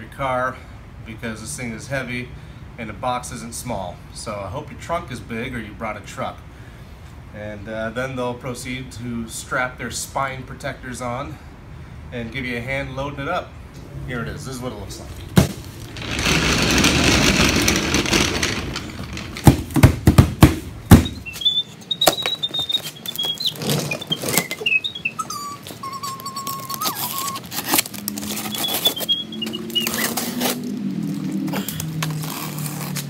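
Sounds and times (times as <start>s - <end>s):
box sliding across concrete floor: 15.4s - 20.0s
high squeaks: 15.8s - 19.6s, 20.9s - 30.7s
cardboard and plastic handling: 25.6s - 30.7s
packing straps snapping: 25.7s - 33.0s.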